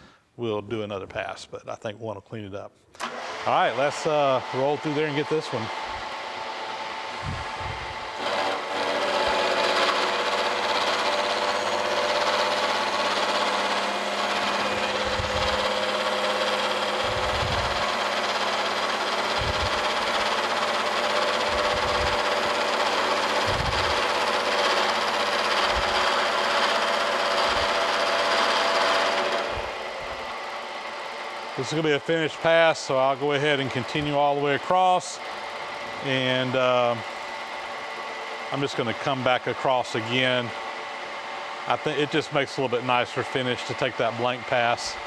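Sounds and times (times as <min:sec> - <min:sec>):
machine running hum: 0:03.0 - 0:45.0
milling cutter cutting metal: 0:03.0 - 0:45.0.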